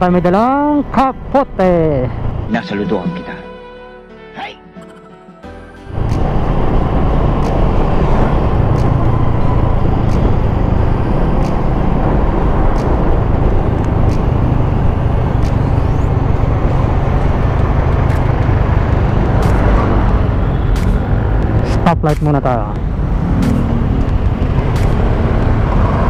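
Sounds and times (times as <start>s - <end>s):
motorcycle engine running: 5.9s - 26.0s
tyre and road noise: 5.9s - 26.0s.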